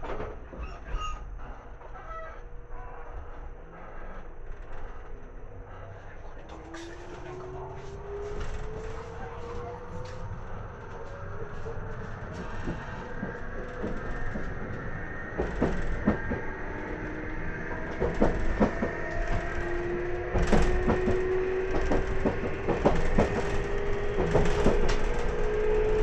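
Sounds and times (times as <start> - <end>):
electric train motor whine: 2.5 - 26.0
wheels clicking over rail joints: 6.0 - 26.0.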